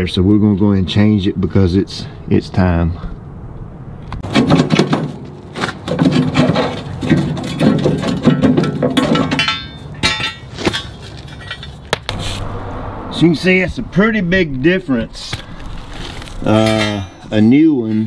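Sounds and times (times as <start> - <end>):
steel plow edge knocking and clanking: 4.2 - 12.2.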